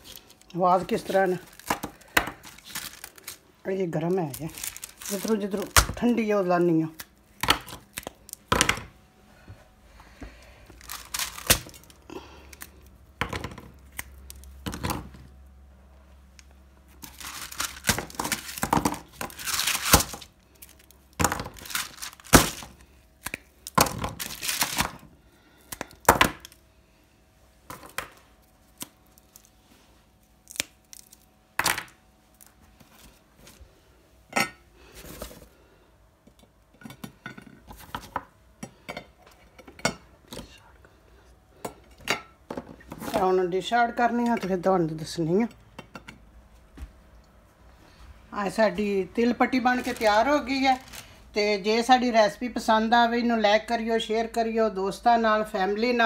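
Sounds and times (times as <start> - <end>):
paper crinkling: 0.0 - 3.4, 4.2 - 5.8, 10.8 - 12.0, 17.0 - 25.0, 49.7 - 51.2
brittle snapping and cracking: 1.5 - 3.4, 6.9 - 8.8, 10.8 - 12.8, 13.4 - 15.1, 17.0 - 25.0, 25.6 - 26.6, 27.7 - 29.5, 30.4 - 32.0.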